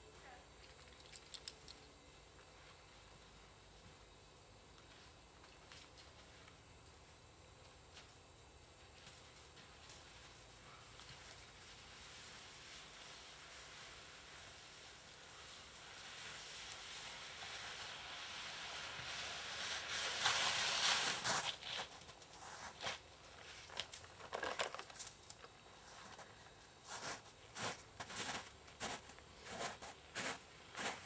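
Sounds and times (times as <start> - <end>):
footsteps crunching in snow: 8.9 - 31.0
hiss: 9.0 - 23.7.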